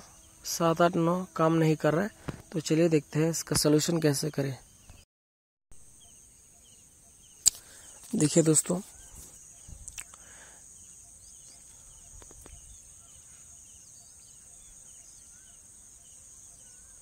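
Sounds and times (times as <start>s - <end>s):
faint chirps: 5.8s - 17.0s
high-pitched hiss: 6.0s - 17.0s.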